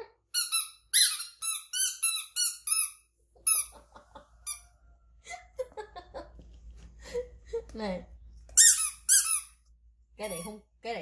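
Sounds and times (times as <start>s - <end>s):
toy squeaker squeaking: 0.3s - 3.7s, 8.6s - 9.5s.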